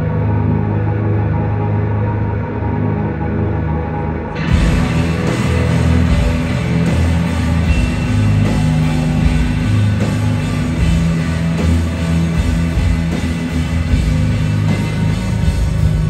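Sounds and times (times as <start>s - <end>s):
bass guitar: 0.0s - 16.0s
electric guitars: 0.0s - 16.0s
held low notes: 0.0s - 16.0s
drum hits: 4.5s - 16.0s.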